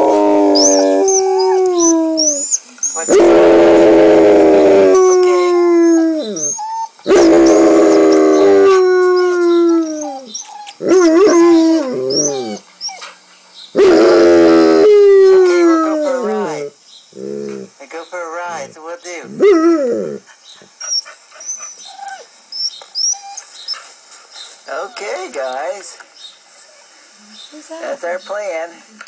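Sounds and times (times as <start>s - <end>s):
dog howling: 0.0s - 13.0s, 13.8s - 17.7s, 19.3s - 20.2s.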